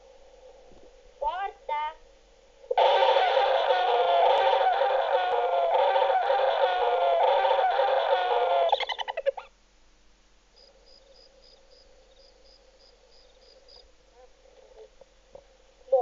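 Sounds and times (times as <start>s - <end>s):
bird-like calls and clucks: 2.7s - 9.5s
high chirps: 2.8s - 9.5s.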